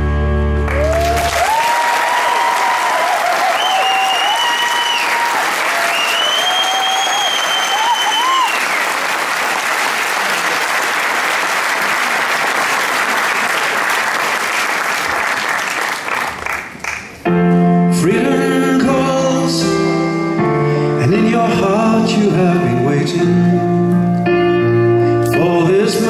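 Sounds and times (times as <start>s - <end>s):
piano playing held chords: 0.0s - 1.3s, 17.2s - 26.0s
audience applause: 0.6s - 17.2s.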